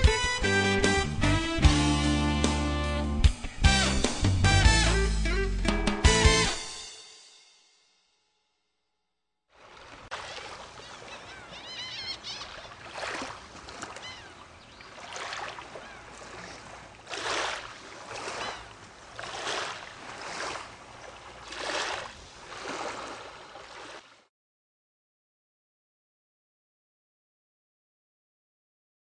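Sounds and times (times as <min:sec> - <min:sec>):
small sea waves lapping: 0:09.5 - 0:24.3.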